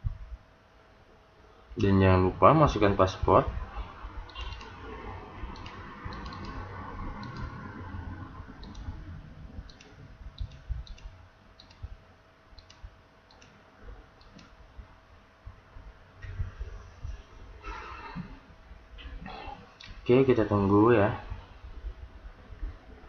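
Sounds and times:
computer mouse clicking: 0:04.3 - 0:04.8, 0:05.5 - 0:07.6, 0:08.6 - 0:09.0, 0:09.7 - 0:11.9, 0:12.6 - 0:13.6, 0:14.2 - 0:14.5.

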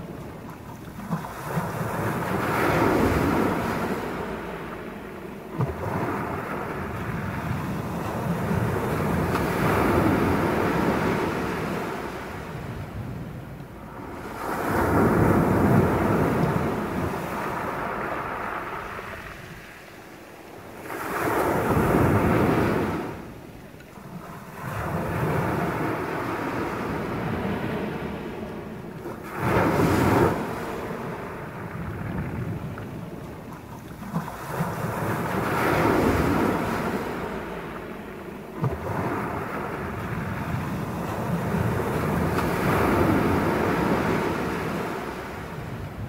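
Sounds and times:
sea waves breaking on pebble beach: 0:14.1 - 0:19.8.

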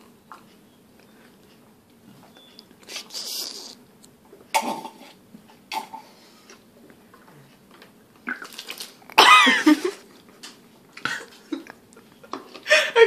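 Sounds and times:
mouth sounds: 0:02.8 - 0:03.9
woman's rough throat sound: 0:04.5 - 0:06.0.

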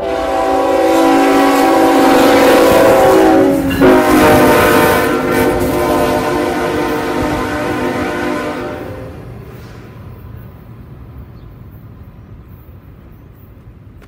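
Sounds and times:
train air horn: 0:00.0 - 0:09.3
low rumble of train: 0:00.0 - 0:14.0.

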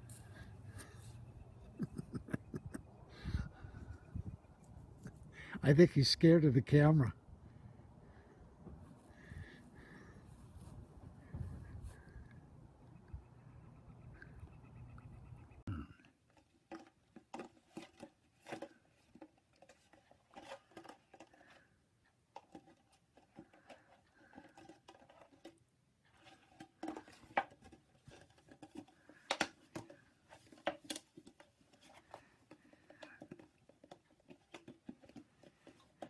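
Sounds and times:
puppy chewing a plastic cup: 0:16.3 - 0:21.7, 0:26.1 - 0:36.0.

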